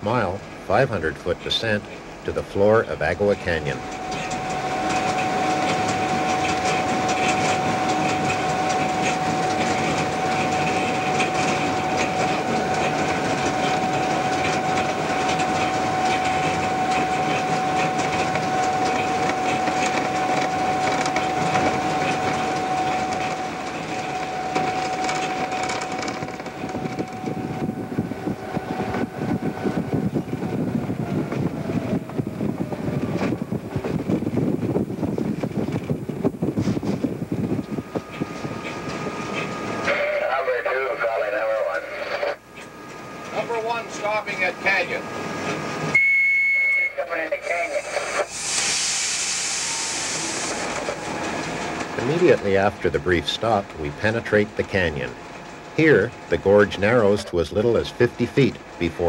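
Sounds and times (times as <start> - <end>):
train wheels clattering on rails: 0.0 - 41.8, 50.3 - 59.0
locomotive whine: 0.0 - 59.0.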